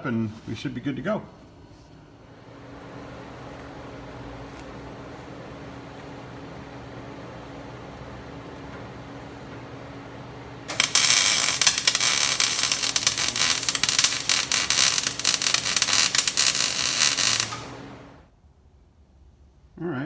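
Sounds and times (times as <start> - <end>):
low steady hum: 0.0 - 20.0
arc welder crackling: 10.6 - 18.3.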